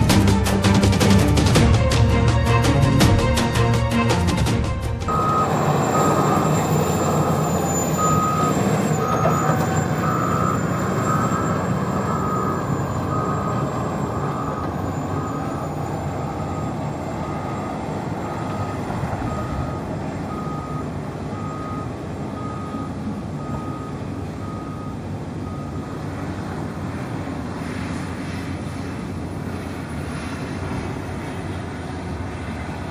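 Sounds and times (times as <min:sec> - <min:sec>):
heavy diesel machinery running: 0:00.0 - 0:32.9
backup alarm beeping: 0:05.1 - 0:26.1.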